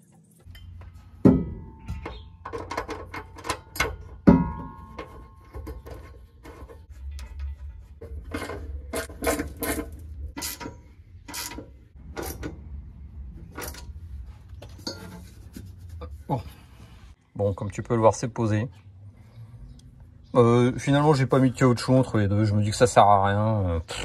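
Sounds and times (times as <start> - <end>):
ratchet wrench clicking on bolts: 10.4 - 10.7, 11.3 - 12.5.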